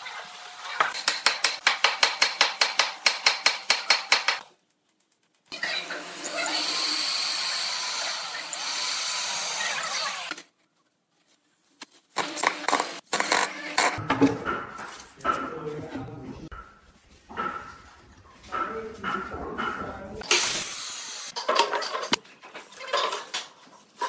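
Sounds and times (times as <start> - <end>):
electric drill boring wood: 5.6 - 10.4.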